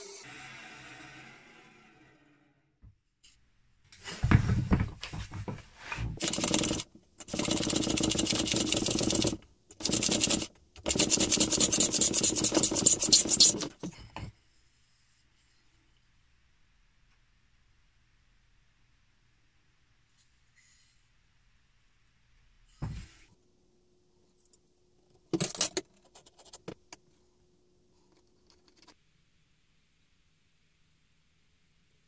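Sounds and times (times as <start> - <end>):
handsaw rasping through wood: 7.4 - 13.8.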